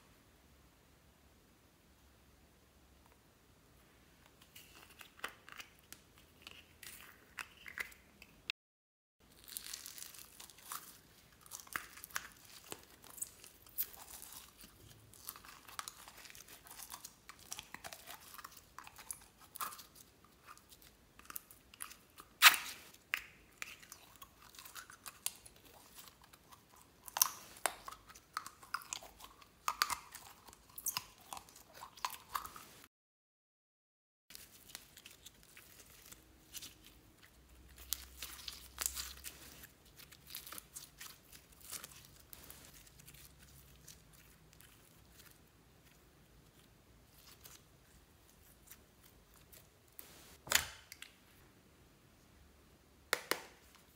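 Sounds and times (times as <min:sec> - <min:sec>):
sharp slime pop: 0:22.4 - 0:23.3, 0:50.4 - 0:51.0.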